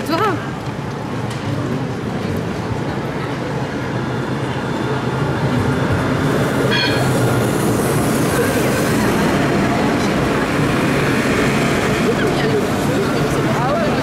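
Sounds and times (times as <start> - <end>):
tram passing on track: 0.0 - 14.0.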